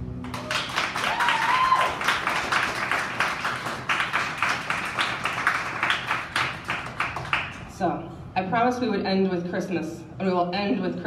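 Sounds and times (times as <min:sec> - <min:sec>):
high cheer: 0:00.2 - 0:07.1
audience applauding: 0:00.2 - 0:07.6.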